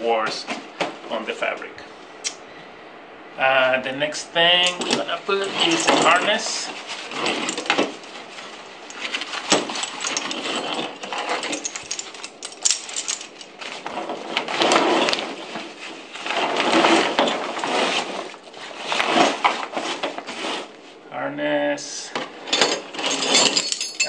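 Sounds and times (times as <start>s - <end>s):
metal buckles clinking: 4.6s - 6.4s, 7.0s - 8.1s, 8.8s - 15.6s, 22.4s - 24.0s
stiff fabric rustling: 4.8s - 21.0s.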